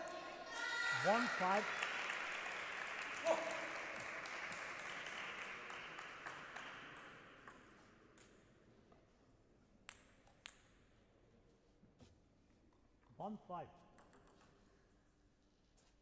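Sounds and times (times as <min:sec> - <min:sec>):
table tennis ball bouncing: 0:06.3 - 0:08.5, 0:09.9 - 0:10.8, 0:13.9 - 0:14.6.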